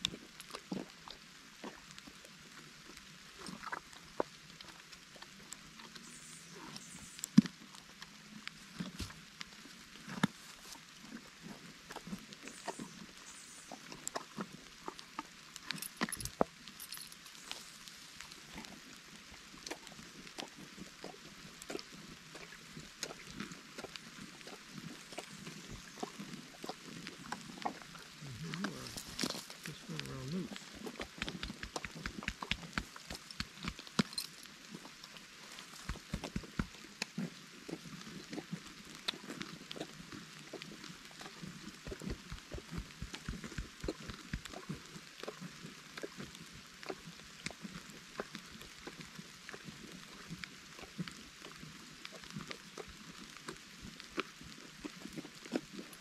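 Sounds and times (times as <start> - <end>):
donkey chewing grass: 19.6 - 56.0
raindrops tapping on camera: 23.8 - 37.3, 40.6 - 49.0
background hiss: 27.2 - 37.0.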